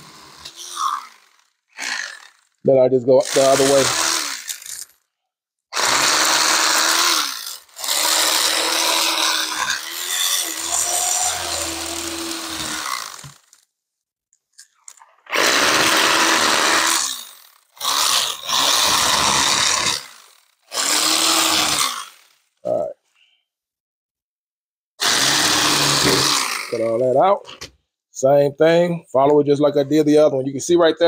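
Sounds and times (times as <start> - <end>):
electric knife motor whirring: 0.0 - 2.6, 3.3 - 4.9, 5.8 - 13.6, 15.3 - 22.4, 25.0 - 26.8.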